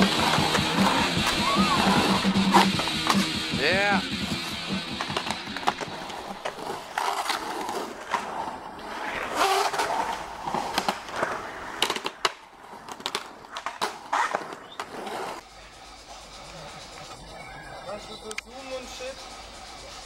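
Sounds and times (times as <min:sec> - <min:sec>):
skateboard clacking on concrete: 0:00.0 - 0:15.4
skateboard wheels rolling on concrete: 0:00.0 - 0:20.0.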